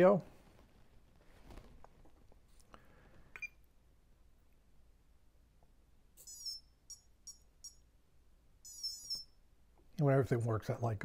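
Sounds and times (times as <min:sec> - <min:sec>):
short beeps: 0:06.2 - 0:07.8, 0:08.6 - 0:09.4.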